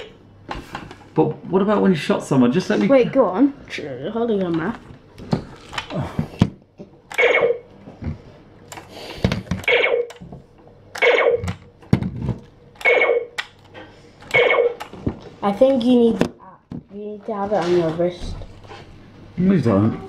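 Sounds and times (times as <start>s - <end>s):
electronic laser shot effects: 7.1s - 7.6s, 9.7s - 10.1s, 11.0s - 11.4s, 12.8s - 13.2s, 14.3s - 14.8s.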